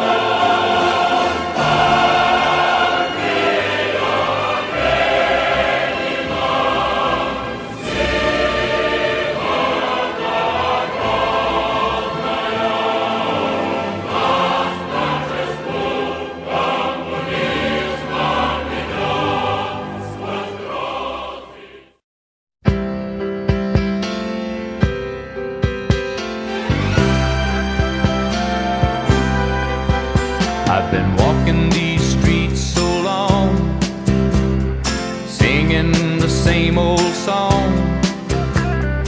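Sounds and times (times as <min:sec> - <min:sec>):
choir singing soundtrack music: 0:00.0 - 0:22.0, 0:26.2 - 0:39.0.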